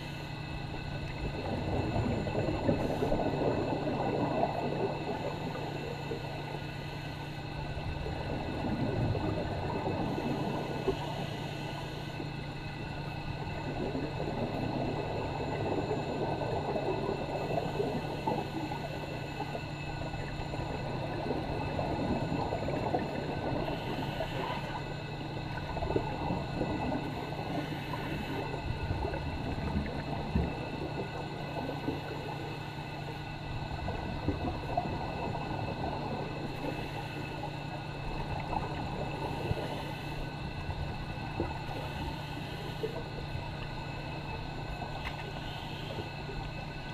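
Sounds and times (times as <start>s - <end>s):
steady low hum: 0.0s - 46.9s
diver's exhaled bubbles gurgling: 1.2s - 6.2s, 7.9s - 11.2s, 13.4s - 32.5s, 33.6s - 43.6s.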